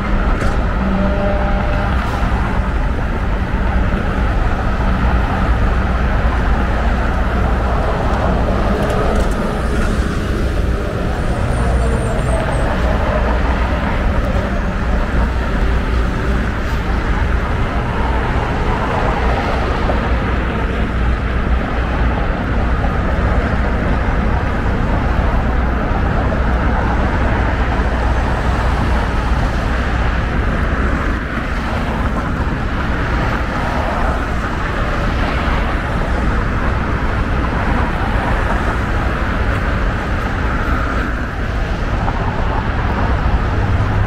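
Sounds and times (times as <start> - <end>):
constant low rumble: 0.0 - 44.0
road traffic passing: 0.0 - 44.0.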